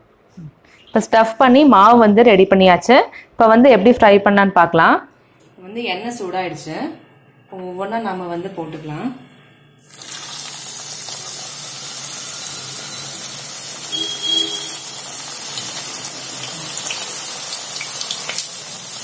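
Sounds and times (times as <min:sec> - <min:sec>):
hot oil sizzling: 0:09.8 - 0:19.0.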